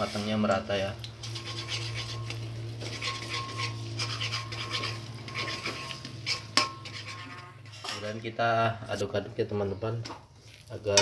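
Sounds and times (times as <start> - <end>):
metal spatula scraping wok: 0.0 - 0.5, 1.2 - 8.4, 10.0 - 11.0.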